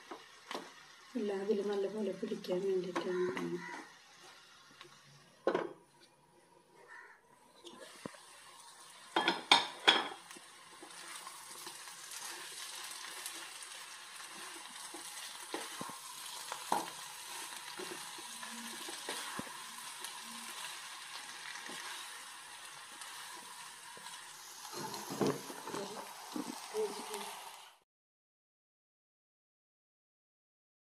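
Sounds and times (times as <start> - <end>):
chicken sizzling in a frying pan: 0.0 - 5.5, 6.8 - 27.8
cookware clattering: 9.1 - 10.2
wooden spatula scraping a pan: 9.4 - 22.4, 23.0 - 27.3.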